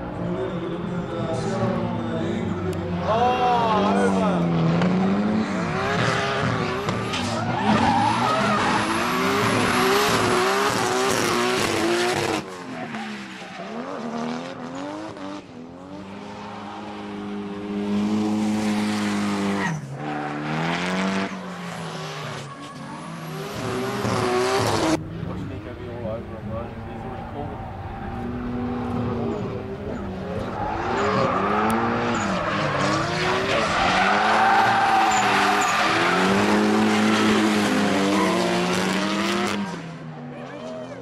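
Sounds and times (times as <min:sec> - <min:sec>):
car engines revving hard: 0:00.0 - 0:40.6
tyres screeching: 0:29.3 - 0:38.6.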